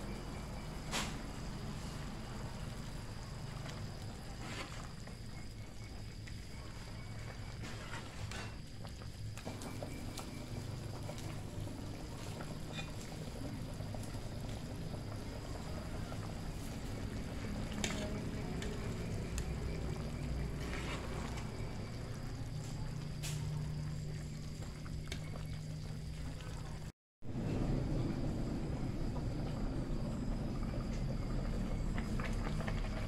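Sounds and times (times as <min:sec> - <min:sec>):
gas stove hum: 0:00.0 - 0:33.0.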